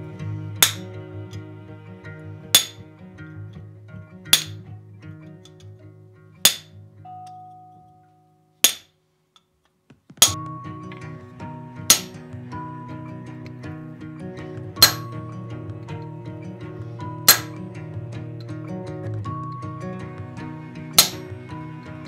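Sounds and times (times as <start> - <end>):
background music: 0.0 - 7.3, 10.2 - 22.0
hammer striking chisel on iron: 0.6 - 0.9, 2.6 - 2.8, 4.4 - 4.6, 6.5 - 6.7, 8.6 - 8.9, 11.9 - 12.2, 14.8 - 15.2, 17.3 - 17.6, 21.0 - 21.3.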